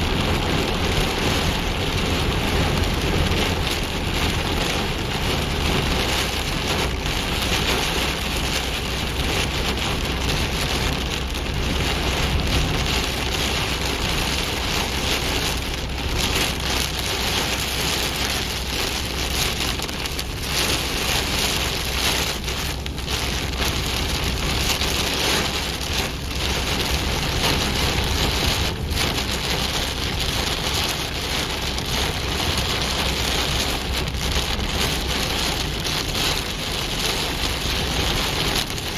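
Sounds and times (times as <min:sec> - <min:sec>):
heavy rain on car windshield: 0:00.0 - 0:38.9
road and engine rumble: 0:00.0 - 0:38.9.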